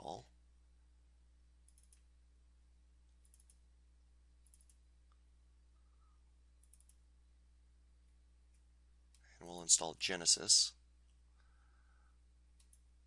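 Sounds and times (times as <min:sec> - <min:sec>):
low electrical hum: 0:00.0 - 0:13.0
computer mouse clicks: 0:01.6 - 0:02.1, 0:03.2 - 0:03.6, 0:04.4 - 0:04.8, 0:06.6 - 0:07.0, 0:12.6 - 0:12.9.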